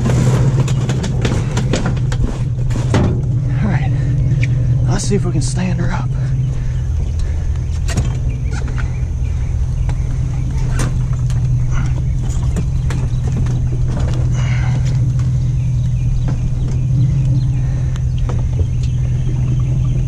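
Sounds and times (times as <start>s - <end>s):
scrap metal knocks and clatter: 0.0s - 3.4s, 9.8s - 15.6s
truck engine idling: 0.0s - 20.0s.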